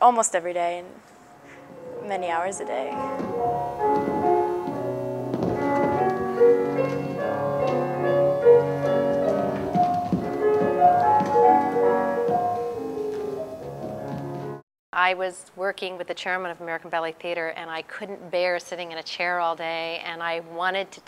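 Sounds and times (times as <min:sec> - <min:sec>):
piano melody: 0:01.2 - 0:14.6.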